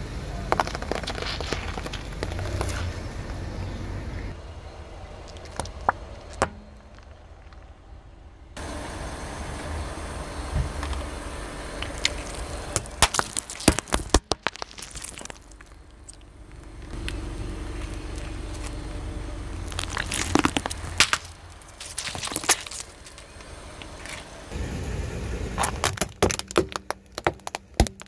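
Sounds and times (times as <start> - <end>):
low car rumble: 0.0 - 28.0
stress balls cracking under tyre: 0.2 - 3.8, 5.2 - 7.8, 11.7 - 18.9, 19.6 - 24.4, 25.5 - 28.0.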